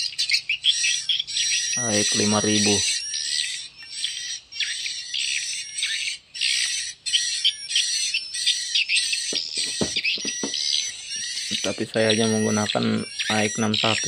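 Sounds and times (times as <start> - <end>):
high-pitched electronic bird chirps: 0.0 - 14.0
soft knocks: 9.3 - 10.6.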